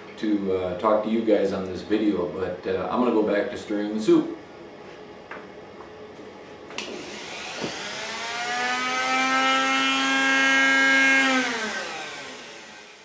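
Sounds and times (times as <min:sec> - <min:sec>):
rotary tool whining: 0:06.8 - 0:13.0.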